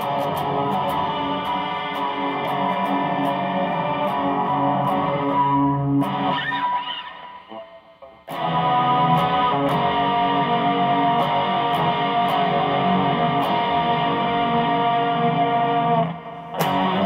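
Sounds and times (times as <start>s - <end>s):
electric guitar strumming chords: 0.0s - 17.0s.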